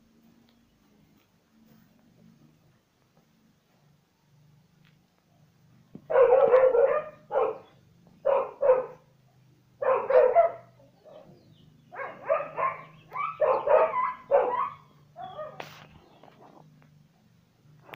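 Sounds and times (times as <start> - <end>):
dog barking: 6.1 - 9.1, 9.8 - 15.7.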